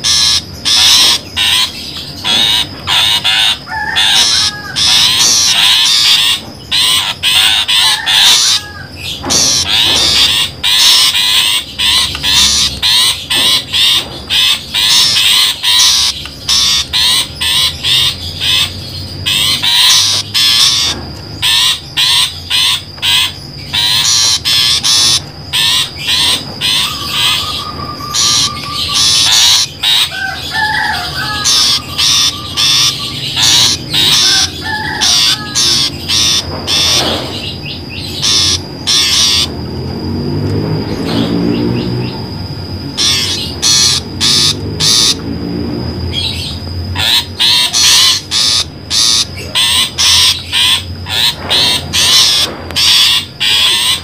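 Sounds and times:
shrike harsh chattering calls: 0.0s - 54.0s
soft warbling bird phrases: 46.2s - 54.0s.

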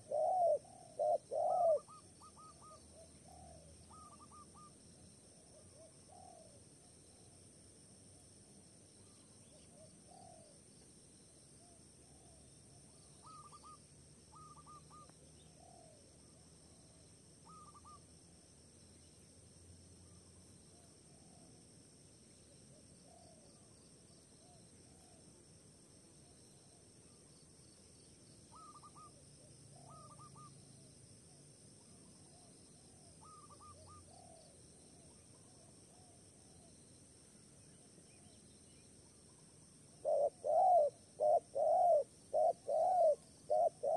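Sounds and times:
faint bird calls: 0.0s - 7.4s, 9.0s - 10.6s, 11.6s - 18.1s, 26.2s - 30.7s, 31.8s - 36.6s, 37.6s - 43.9s
high drone of insects: 0.0s - 43.9s.

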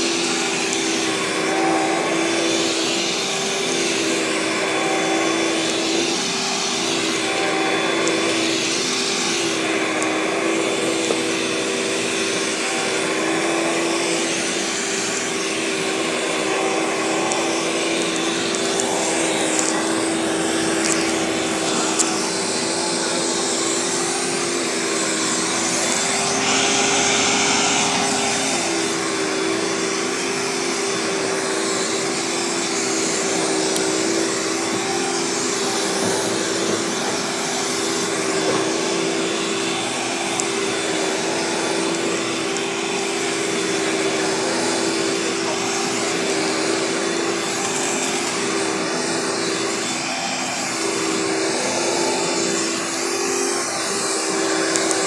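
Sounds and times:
vacuum cleaner running on carpet: 0.0s - 55.0s.

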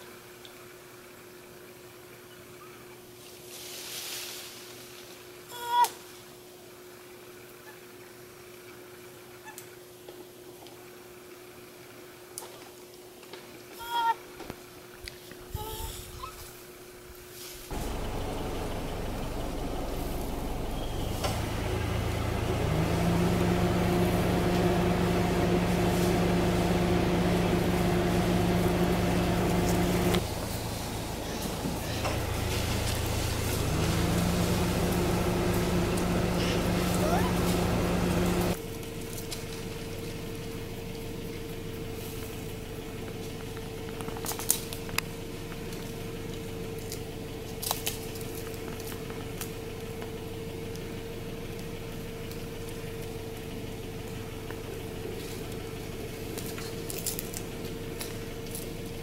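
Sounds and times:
quieter steady hum: 16.7s - 59.0s
vehicle engine idling: 16.8s - 59.0s.

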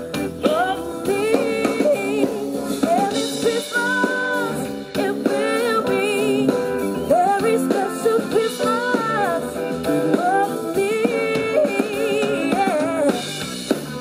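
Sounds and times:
guitar accompaniment: 0.0s - 14.0s
woman singing: 0.1s - 13.4s.

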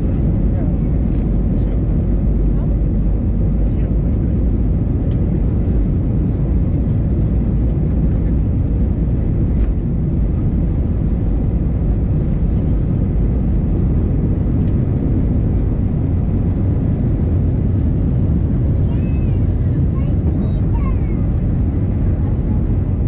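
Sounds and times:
jet engines rumbling in cabin: 0.0s - 23.0s.

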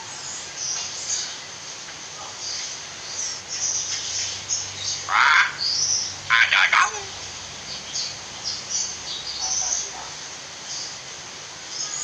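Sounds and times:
myna harsh call: 6.3s - 7.2s.

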